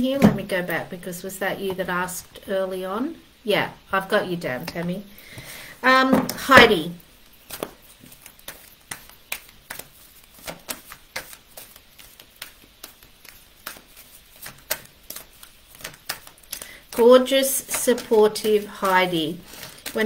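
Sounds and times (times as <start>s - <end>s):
cards being shuffled: 7.2s - 20.0s.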